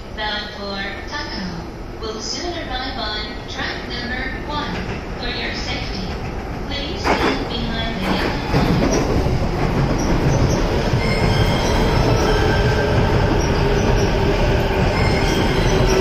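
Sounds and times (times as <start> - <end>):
train wheels rumbling over rails: 4.3 - 16.0.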